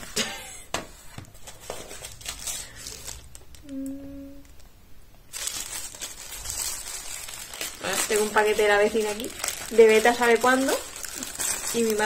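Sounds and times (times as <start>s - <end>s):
packaging rustling and crinkling: 1.1s - 3.7s, 5.3s - 12.0s.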